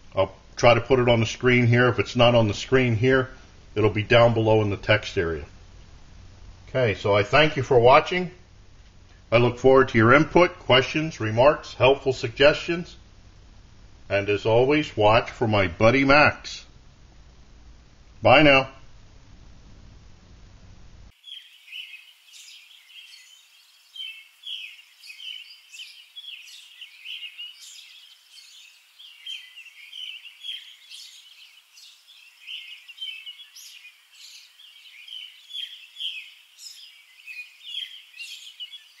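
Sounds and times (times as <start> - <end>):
faint background hiss: 0.0 - 39.0
birds chirping and twittering: 21.1 - 39.0.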